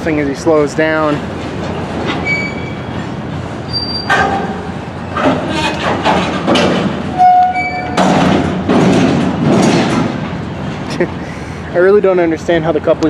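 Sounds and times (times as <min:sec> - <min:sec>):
short metallic squeals: 0:02.1 - 0:06.4, 0:07.1 - 0:08.1
freight car couplers banging: 0:03.8 - 0:10.8.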